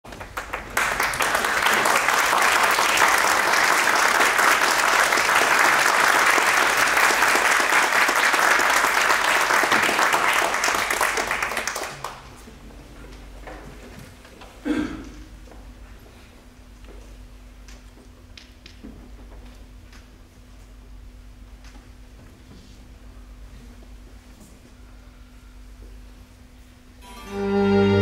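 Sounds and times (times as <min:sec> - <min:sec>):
audience applauding: 0:00.1 - 0:12.4.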